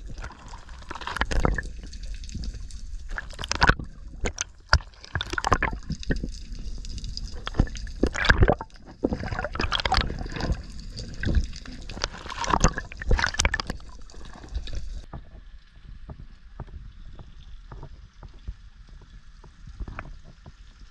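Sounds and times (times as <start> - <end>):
underwater water rushing: 0.0 - 15.1.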